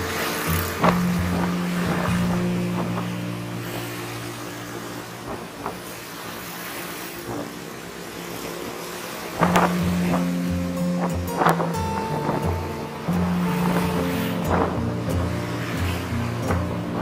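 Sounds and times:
road traffic noise: 0.0 - 17.0.

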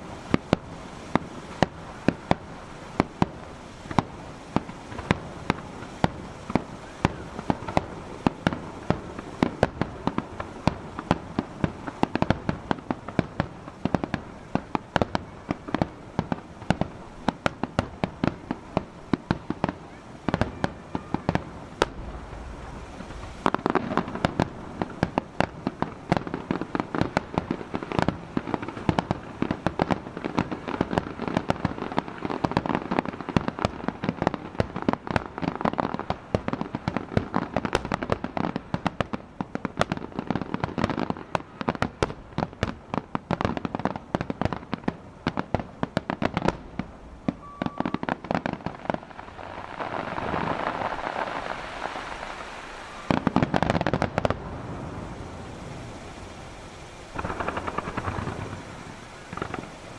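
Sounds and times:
fireworks bangs and crackles: 0.0 - 59.9.

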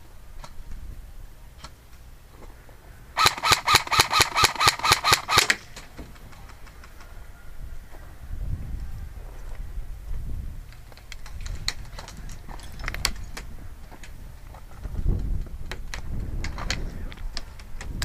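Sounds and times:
airsoft rifle rapid shots: 3.2 - 5.6.

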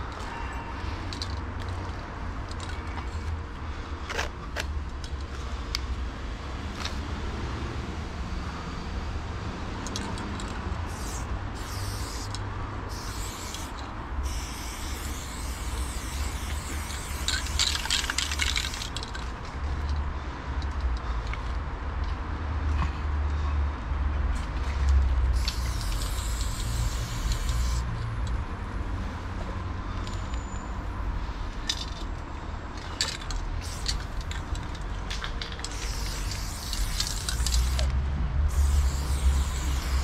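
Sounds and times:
spray paint can hissing: 9.8 - 19.2, 25.3 - 28.0, 33.0 - 37.9, 38.5 - 40.0.

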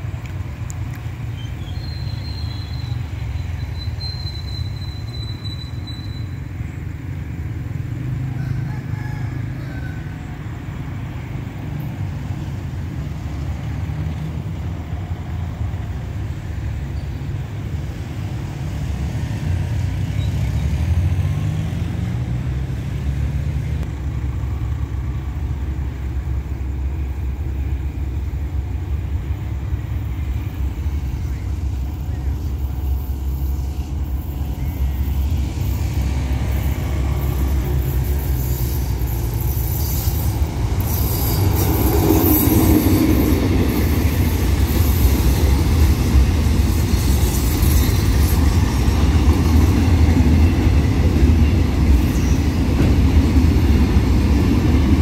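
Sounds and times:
locomotive engine rumble: 0.0 - 55.0
thin high whistle: 1.4 - 6.5.

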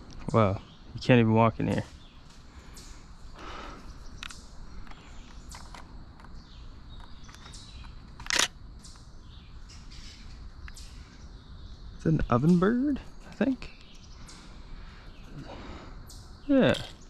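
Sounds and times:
songbird chirps: 0.0 - 17.0
woodland ambience: 0.0 - 17.0
sharp click: 8.2 - 9.1.

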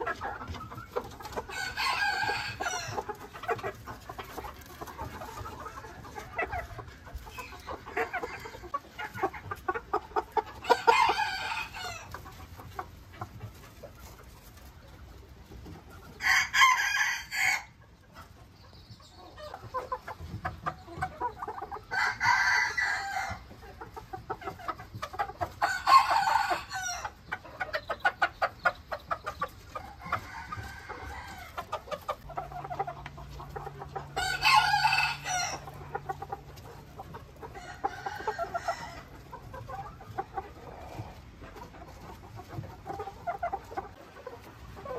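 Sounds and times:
chickens clucking: 0.0 - 44.9
roosters crowing: 1.2 - 3.9, 7.4 - 12.3, 16.0 - 17.8, 21.5 - 23.7, 25.4 - 27.4, 29.6 - 41.3.

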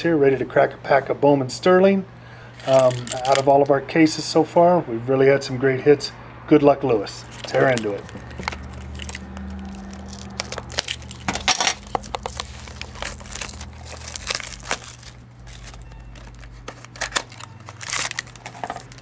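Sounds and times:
foil wrapper tearing and crinkling: 2.6 - 3.5, 7.2 - 19.0.

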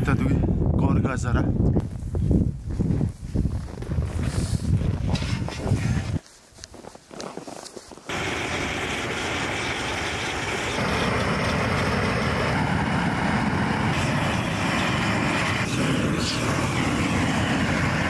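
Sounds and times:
gas torch rushing flame: 8.1 - 18.0.

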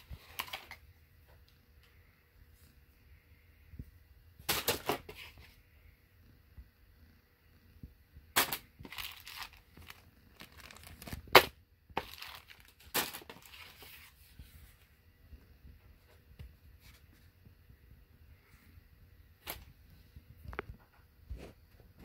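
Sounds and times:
plastic packaging crinkling and tearing: 8.4 - 14.0.

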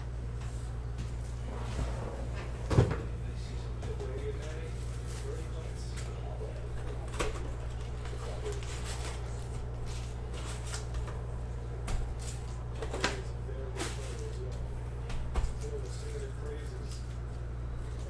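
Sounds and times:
steady low hum: 0.0 - 18.0
foil packs rustling and crinkling: 4.4 - 6.2, 6.9 - 11.1, 12.1 - 14.6, 15.5 - 17.2.

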